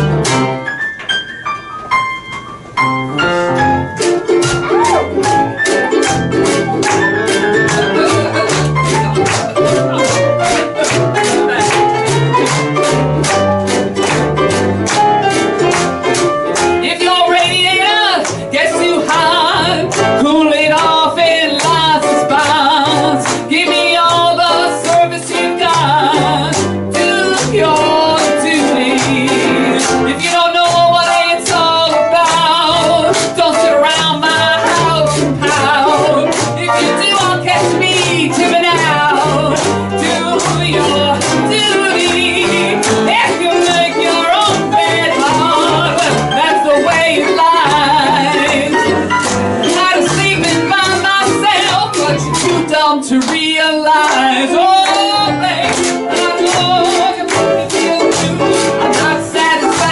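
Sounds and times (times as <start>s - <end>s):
live instrumental music with beat: 0.0s - 59.9s
woman singing into a microphone: 16.8s - 49.0s, 49.6s - 59.9s.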